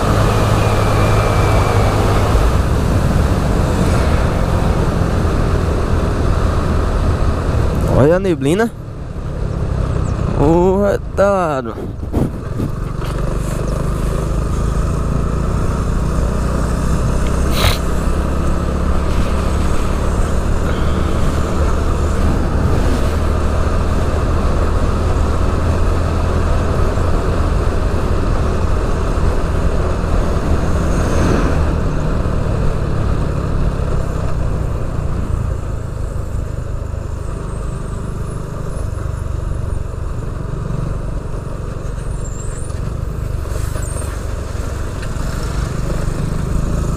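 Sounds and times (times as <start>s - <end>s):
wind and road noise: 0.0s - 46.9s
motorcycle engine running: 11.9s - 30.9s.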